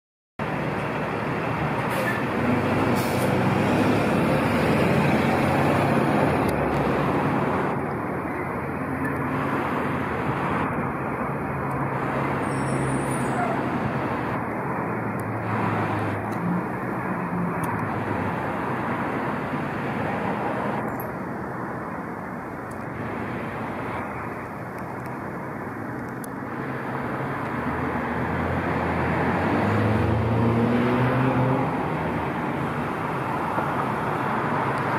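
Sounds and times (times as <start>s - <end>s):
road traffic noise: 0.4s - 34.9s
vehicle engine: 0.4s - 34.9s.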